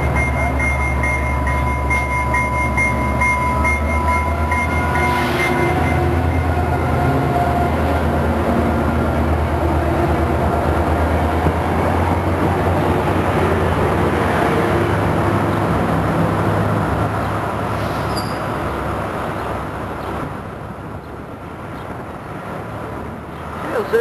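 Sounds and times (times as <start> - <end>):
locomotive engine drone: 0.0 - 24.0
train coaches rolling on rails: 0.0 - 24.0.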